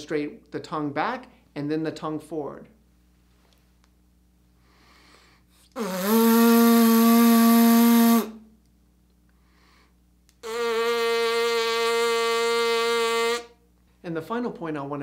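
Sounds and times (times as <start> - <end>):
person breathing in: 4.6 - 6.0, 9.4 - 10.0
lips buzzing sustained note: 5.0 - 8.5, 9.4 - 13.6.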